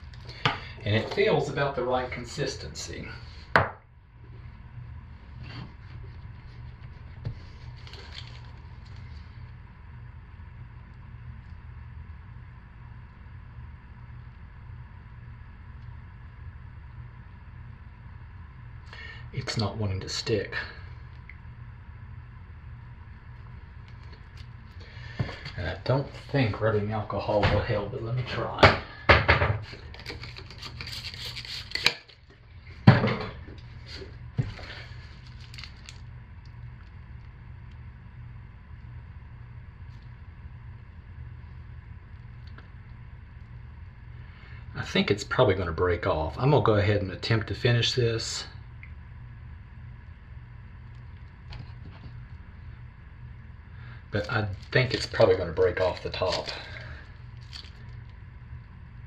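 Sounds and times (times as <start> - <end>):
low room hum: 0.0 - 59.0.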